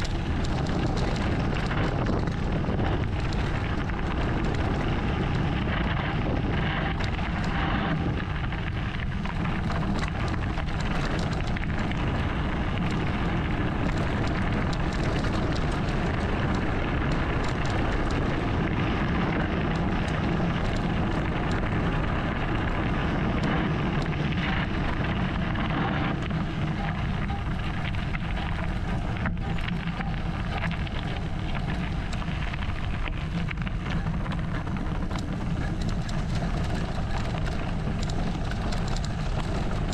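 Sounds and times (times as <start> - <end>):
bike clicks and rattles: 0.0 - 39.9
bike tyres rolling over gravel: 0.0 - 39.9
small stones crackling: 0.0 - 39.9
wind over microphone: 0.0 - 39.9.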